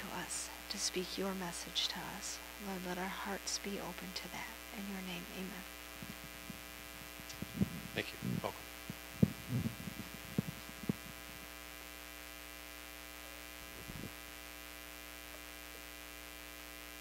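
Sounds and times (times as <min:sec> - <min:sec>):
low electrical hum: 0:00.0 - 0:17.0
muffled movement sounds: 0:05.2 - 0:11.6, 0:13.7 - 0:14.2.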